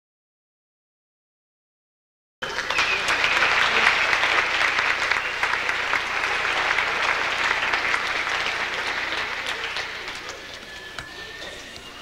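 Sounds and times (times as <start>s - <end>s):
audience applauding: 2.4s - 11.7s.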